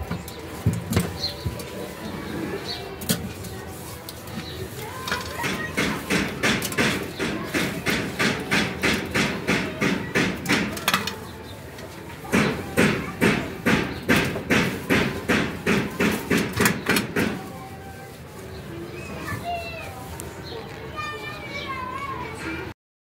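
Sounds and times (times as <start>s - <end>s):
cloth scrubbing stove top: 1.2s - 10.8s.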